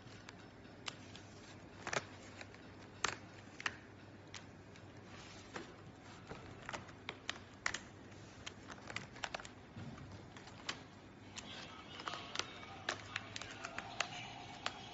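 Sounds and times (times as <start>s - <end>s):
paper rustling: 0.0s - 14.9s.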